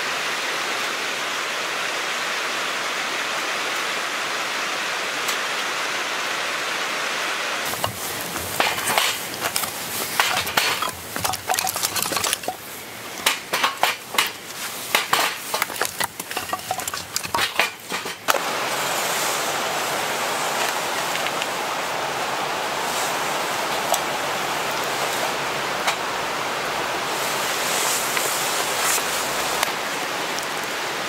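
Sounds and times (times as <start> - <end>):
steady hiss: 0.0 - 31.0
firewood knocking and clattering: 7.7 - 18.4
wood against metal fire pit: 7.7 - 18.4.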